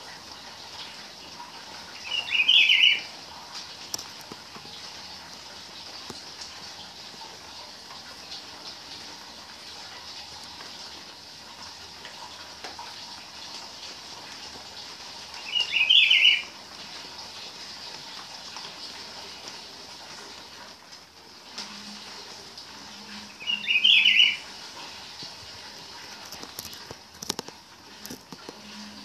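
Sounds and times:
bird singing: 2.0s - 3.1s, 15.4s - 16.5s, 23.3s - 24.4s.

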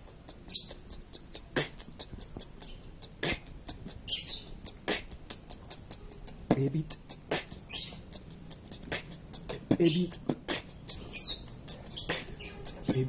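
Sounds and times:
vocal beatbox: 0.0s - 13.0s.

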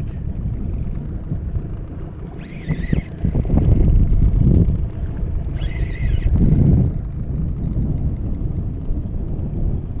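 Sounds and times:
fishing reel whirring: 0.0s - 10.0s
wind buffeting microphone: 0.0s - 10.0s
high squeal: 2.3s - 4.6s.

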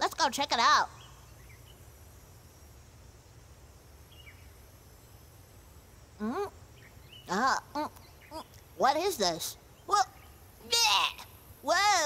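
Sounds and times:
low hum and hiss: 0.0s - 12.0s
soft bird chirps: 0.6s - 2.0s, 4.0s - 11.4s.

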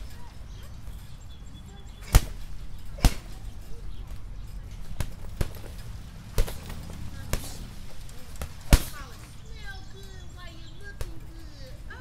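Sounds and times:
punches hitting punching bag: 2.0s - 3.6s, 4.8s - 9.3s.

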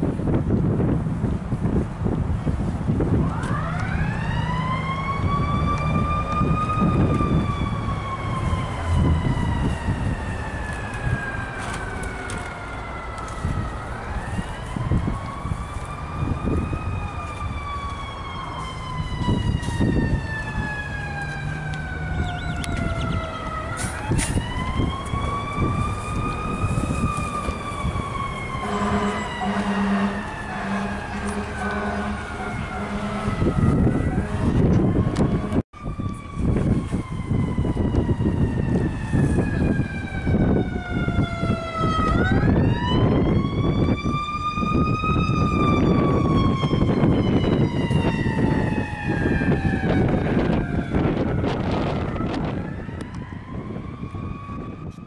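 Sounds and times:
fire engine siren: 0.0s - 55.0s
truck engine rumble: 0.0s - 55.0s
low horn: 28.6s - 35.6s.

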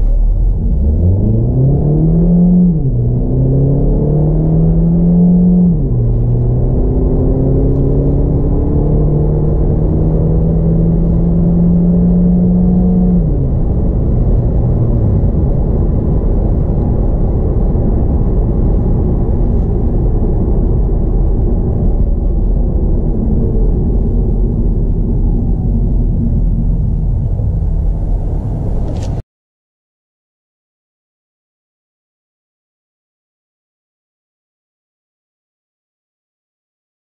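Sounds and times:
car engine accelerating: 0.0s - 29.2s
road and tyre rumble: 0.0s - 29.2s.

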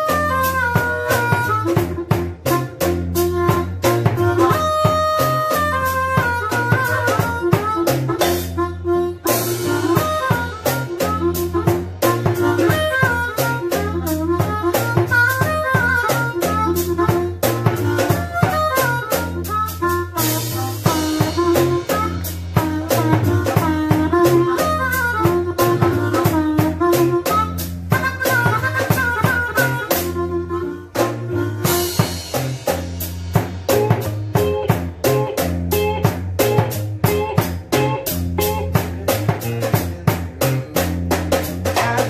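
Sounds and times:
amplified blues harmonica: 0.0s - 42.0s
band with drum kit: 0.0s - 42.0s.

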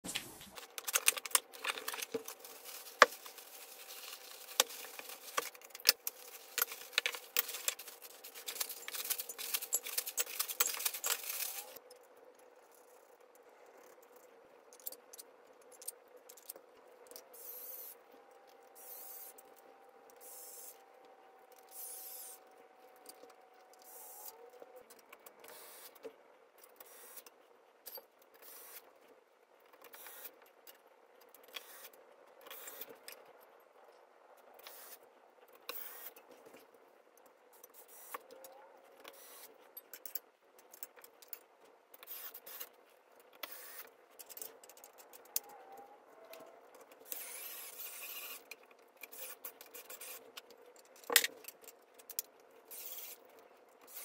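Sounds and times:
metal hardware clicking and rattling: 0.6s - 11.8s.

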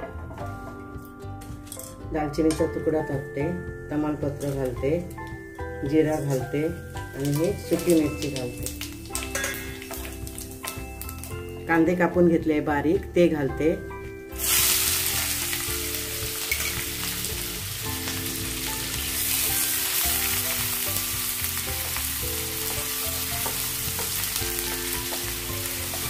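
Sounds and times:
soft melodic background music: 0.0s - 26.0s
onions sizzling in oil: 6.1s - 11.5s, 14.3s - 26.0s.

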